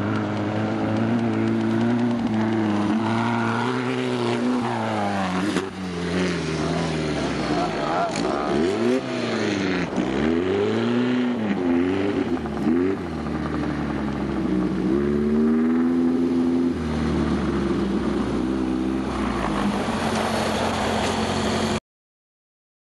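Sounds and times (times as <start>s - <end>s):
engine revving hard: 1.6s - 13.7s.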